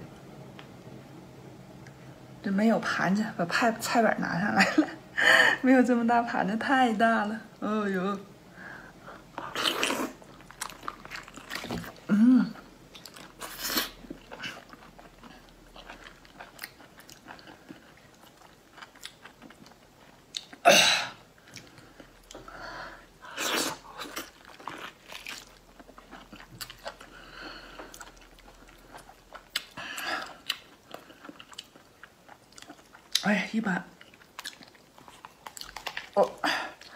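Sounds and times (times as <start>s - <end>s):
chewing and sucking lobster meat: 9.3s - 20.6s, 23.2s - 33.2s, 34.0s - 36.9s.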